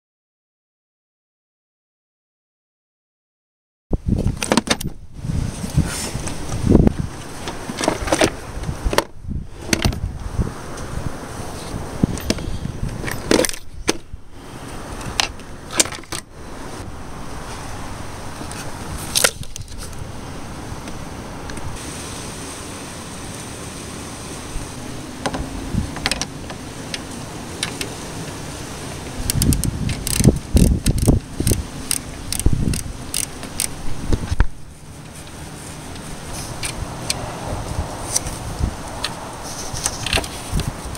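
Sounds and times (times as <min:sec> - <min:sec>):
wind rumble on microphone: 0:03.9 - 0:40.9
clicks and knocks of car parts: 0:04.3 - 0:05.0, 0:07.4 - 0:10.0, 0:12.2 - 0:14.1, 0:15.0 - 0:16.3, 0:26.0 - 0:26.6
hand ratchet clicking: 0:29.2 - 0:33.8.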